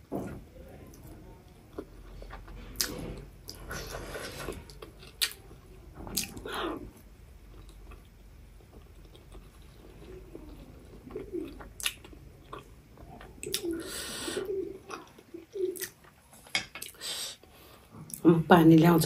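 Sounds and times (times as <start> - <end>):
wet chewing mouth clicks: 11.1 - 13.8.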